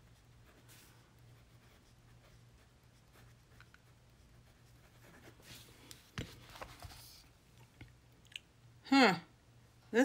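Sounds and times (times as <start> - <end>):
fountain pen scratching on paper: 0.0 - 5.7.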